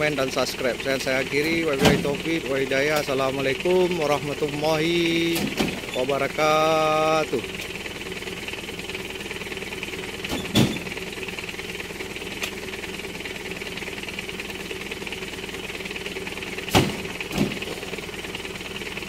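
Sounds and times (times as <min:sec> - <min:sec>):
fruit bunches thudding into truck bed: 0:01.5 - 0:02.4, 0:05.3 - 0:06.0, 0:10.3 - 0:11.0, 0:16.6 - 0:18.2.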